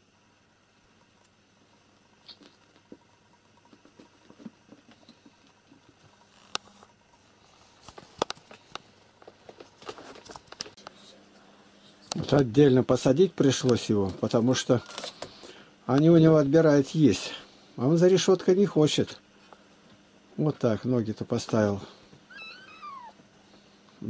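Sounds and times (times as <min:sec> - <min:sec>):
kittens pattering on carpet: 0:03.6 - 0:06.9.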